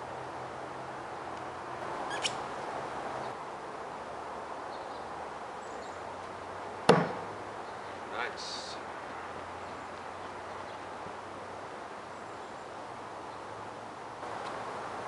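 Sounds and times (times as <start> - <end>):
knife thunking into wood: 6.9 - 7.3.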